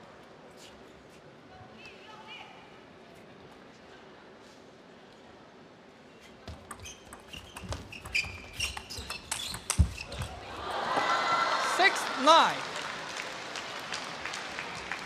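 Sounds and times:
shoe squeaks: 6.2 - 10.5
table tennis ball clicking: 6.5 - 10.3.

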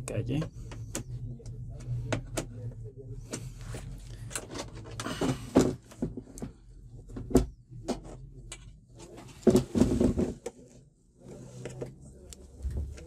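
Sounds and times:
clicks and knocks from tv casing: 4.3 - 8.2, 9.0 - 10.5.

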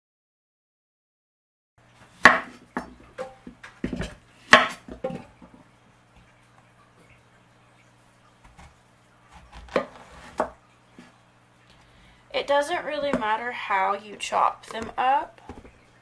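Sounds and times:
low steady hum: 1.8 - 16.0
knife chopping on wooden board: 2.2 - 5.2, 8.4 - 10.6.

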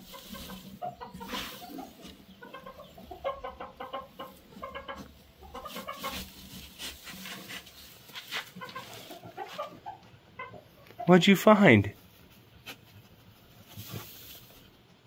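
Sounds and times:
hay rustling: 0.0 - 3.2, 4.0 - 9.7, 12.1 - 14.9
chickens clucking: 0.0 - 11.3.

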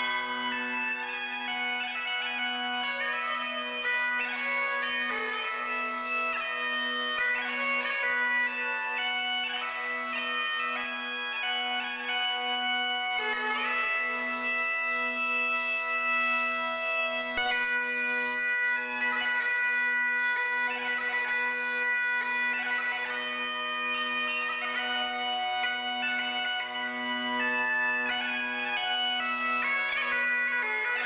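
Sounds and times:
bagpipes playing a melody: 0.0 - 31.0.

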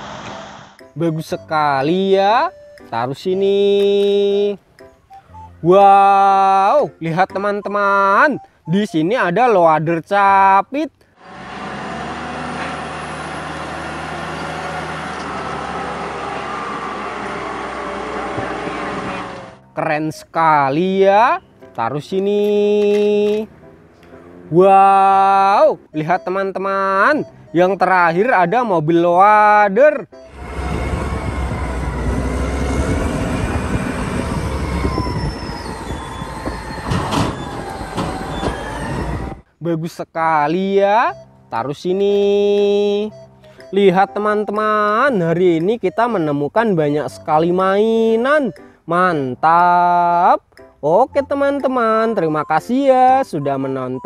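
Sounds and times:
faint hydraulic whine: 0.0 - 0.8
diesel engine running: 11.2 - 19.7, 23.3 - 27.7, 30.1 - 39.4.

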